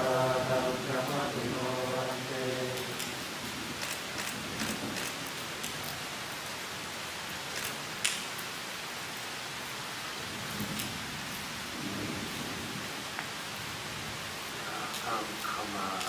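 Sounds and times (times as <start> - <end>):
rain hissing: 0.0 - 16.0
sharp clicks: 3.8 - 5.9, 7.5 - 8.2.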